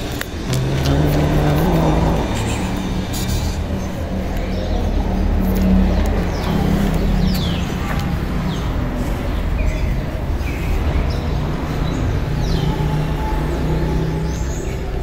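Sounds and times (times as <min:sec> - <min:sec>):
birds chirping: 0:00.0 - 0:15.0
low street rumble: 0:00.0 - 0:15.0.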